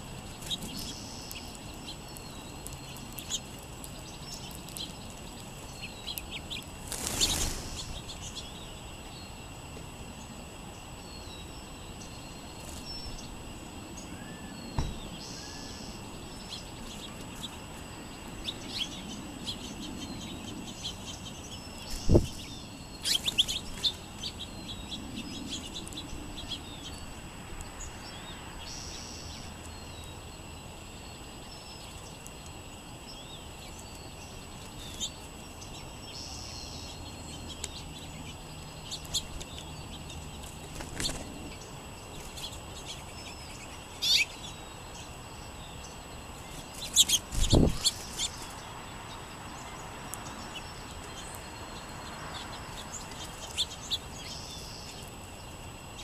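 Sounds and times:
songbirds chirping: 0:00.0 - 0:56.0
bird wings fluttering: 0:06.8 - 0:07.9, 0:40.6 - 0:41.4, 0:46.6 - 0:48.5
low thump: 0:14.8 - 0:15.1.

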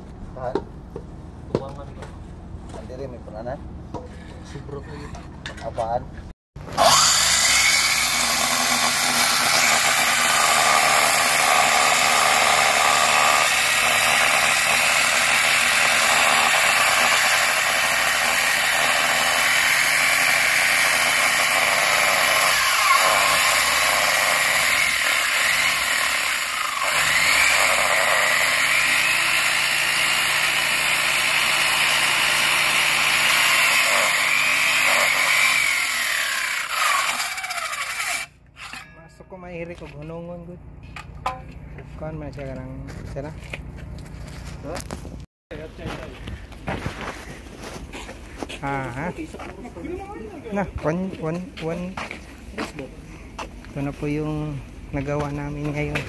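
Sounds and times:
circular saw cutting concrete: 0:06.6 - 0:39.0.

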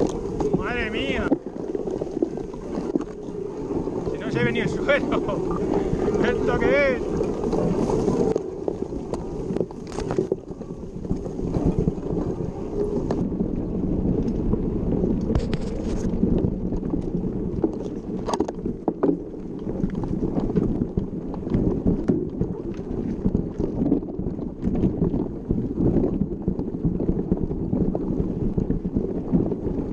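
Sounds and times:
bike rattling over rough trail: 0:00.0 - 0:29.9
wind buffeting microphone: 0:00.0 - 0:29.9.

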